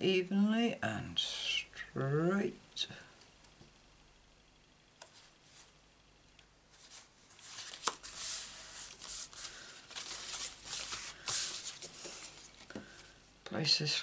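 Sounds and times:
cardstock rustling and scraping: 0:06.8 - 0:13.1.

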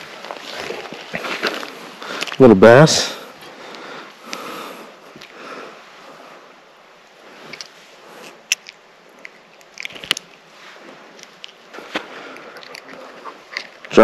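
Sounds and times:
faint steady hiss: 0:00.0 - 0:14.0.

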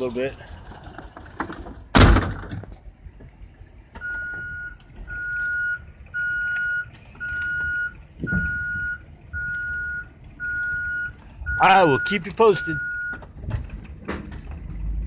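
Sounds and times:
vehicle back-up alarm beeping: 0:04.0 - 0:13.3.

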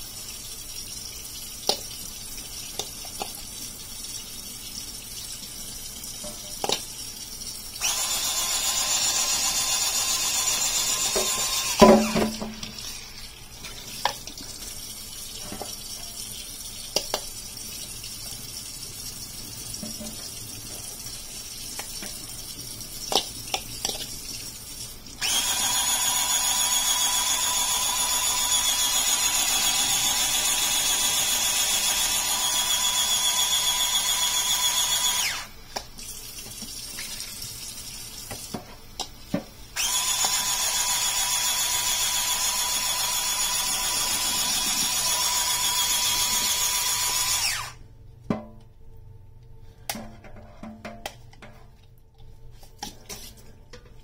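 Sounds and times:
tap water running into sink: 0:00.0 - 0:47.4
electric scrubbing brush whining: 0:07.8 - 0:13.1, 0:25.2 - 0:35.6, 0:39.8 - 0:47.8.

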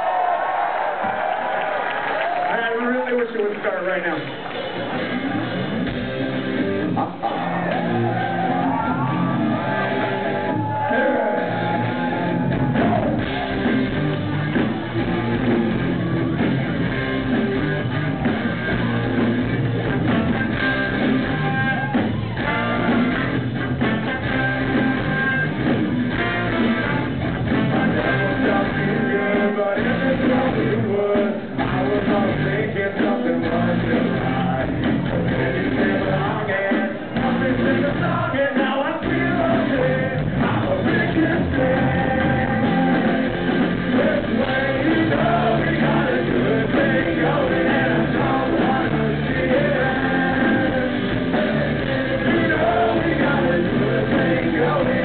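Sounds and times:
live ska punk band: 0:04.2 - 0:55.0
trombone: 0:22.4 - 0:25.4
person singing: 0:26.3 - 0:55.0.

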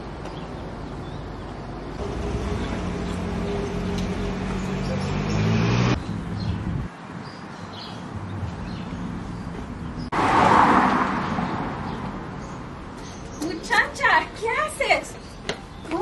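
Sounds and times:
outdoor noise: 0:00.0 - 0:16.0
car passing: 0:02.0 - 0:06.9, 0:10.0 - 0:12.9
engine hum rising in pitch: 0:02.0 - 0:06.9.

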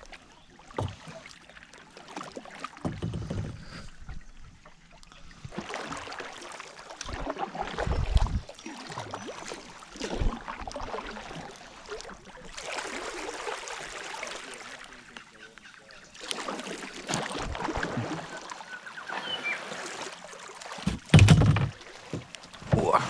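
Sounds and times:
paddle strokes splashing in water: 0:00.0 - 0:23.0
dull thump: 0:20.8 - 0:22.9.

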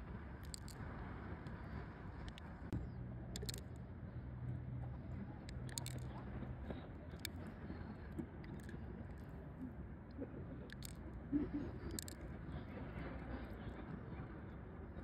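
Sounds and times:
low steady hum: 0:00.0 - 0:15.0
sharp clicks: 0:00.4 - 0:00.8, 0:03.3 - 0:03.8, 0:05.5 - 0:06.2, 0:10.7 - 0:11.0, 0:11.8 - 0:12.2
wet squishing: 0:05.5 - 0:06.1, 0:10.7 - 0:11.0, 0:11.8 - 0:12.2.

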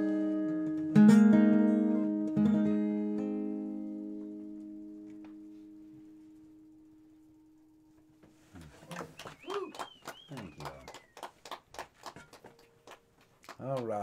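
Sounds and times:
acoustic guitar chords: 0:00.0 - 0:09.7.

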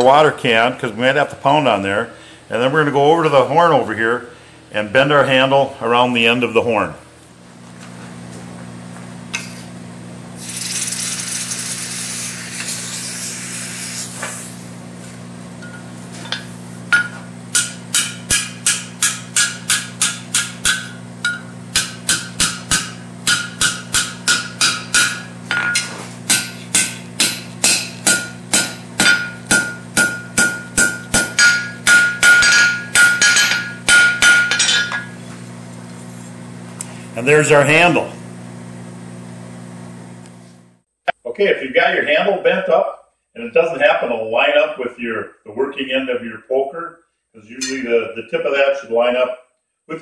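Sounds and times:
steady low hum: 0:00.0 - 0:46.8
hiss: 0:10.4 - 0:14.7
anvil ringing: 0:15.6 - 0:35.2, 0:47.6 - 0:48.0
hammer striking steel on anvil: 0:15.6 - 0:35.2, 0:47.6 - 0:47.9.

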